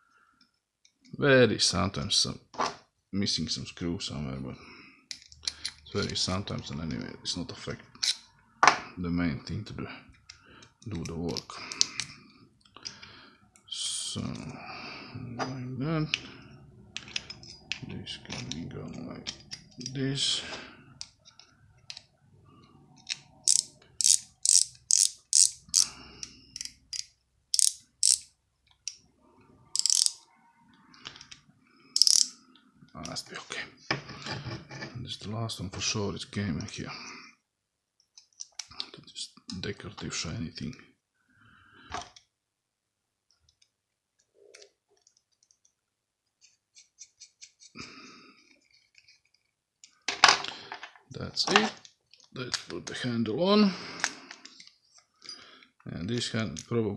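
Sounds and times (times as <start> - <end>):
fishing reel ratchet clicks: 23.4 - 25.9, 26.6 - 28.3, 29.8 - 30.2, 32.0 - 32.3.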